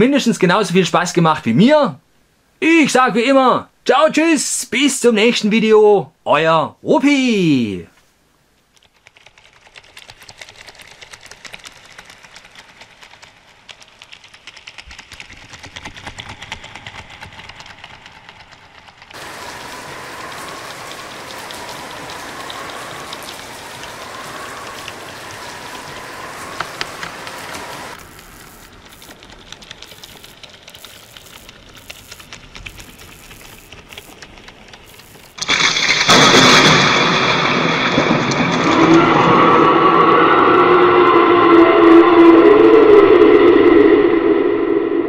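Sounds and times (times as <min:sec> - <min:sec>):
rain pattering: 0:08.5 - 0:40.1
faint wavering whistle: 0:39.0 - 0:45.0.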